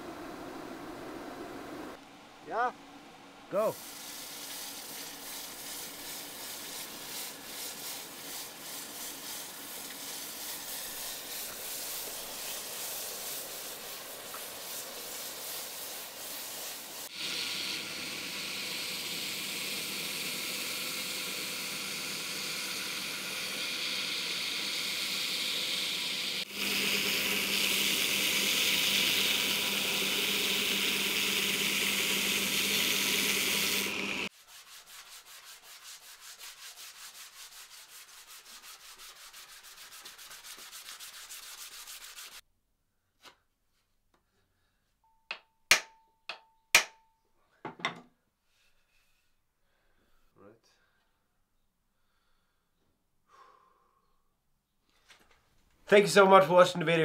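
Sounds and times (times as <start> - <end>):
belt grinder sanding wood: 3.6 - 42.4
hot metal sizzling in water: 3.7 - 34.3.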